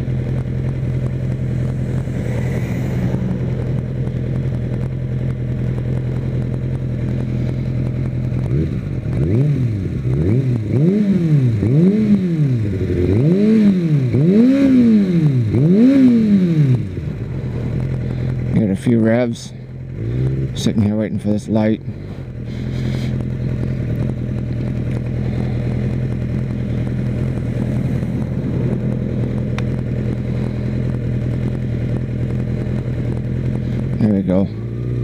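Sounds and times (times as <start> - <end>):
motorcycle engine idling and revving: 0.0 - 35.0.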